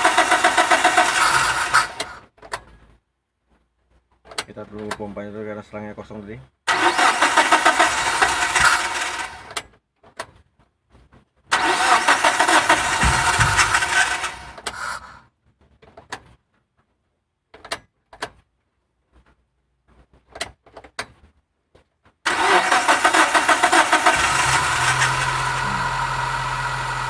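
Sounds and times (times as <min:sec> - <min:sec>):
engine cranking on starter: 0:00.0 - 0:02.6, 0:06.7 - 0:09.6, 0:11.5 - 0:15.2, 0:22.2 - 0:27.0.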